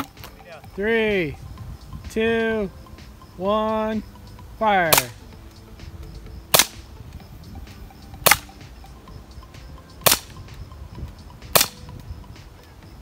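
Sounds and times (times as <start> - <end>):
bb gun shots: 4.9 - 5.2, 6.5 - 6.9, 8.2 - 8.5, 10.0 - 10.4, 11.5 - 11.8.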